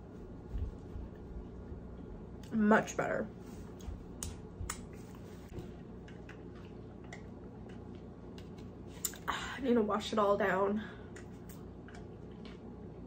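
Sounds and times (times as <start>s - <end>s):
chewing and mouth noises: 5.7s - 9.3s, 11.1s - 13.0s.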